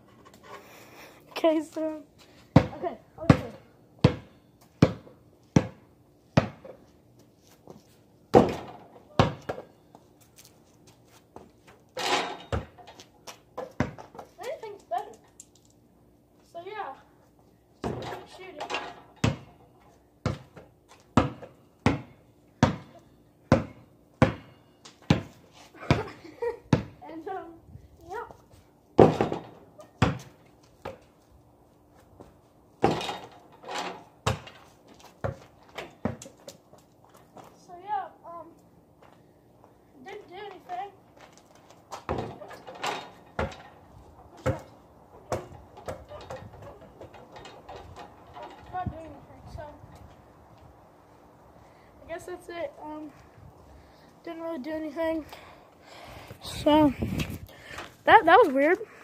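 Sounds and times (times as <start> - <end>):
basketball bouncing on pavement: 2.5 - 9.9, 12.4 - 15.1, 17.8 - 18.3, 19.0 - 19.6, 20.2 - 28.3, 29.0 - 31.3, 32.2 - 37.6, 40.3 - 49.2.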